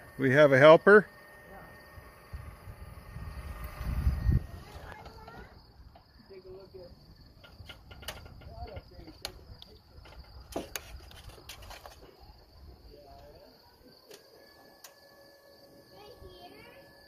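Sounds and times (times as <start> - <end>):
crickets chirping: 0.0 - 17.0
sharp clicks and knocks: 7.4 - 12.1.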